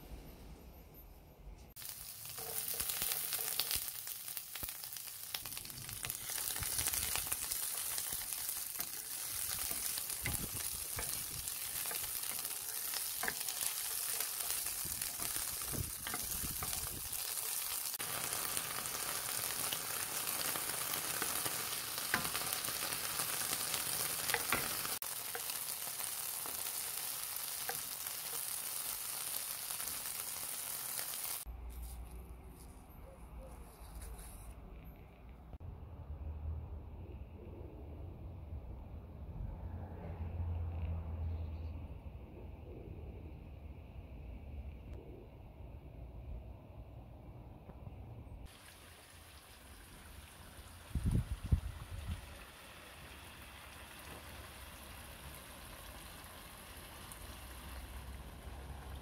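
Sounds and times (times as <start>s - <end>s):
food sizzling in a pan: 1.7s - 31.5s, 48.4s - 59.0s
small crackles: 1.8s - 32.8s.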